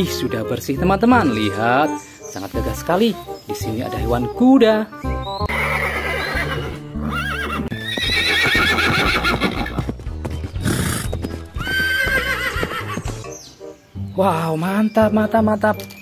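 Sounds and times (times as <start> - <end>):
background music: 0.0 - 16.0
horse whinnying: 5.4 - 9.9, 10.6 - 13.1
hooves clip-clopping: 5.5 - 13.4.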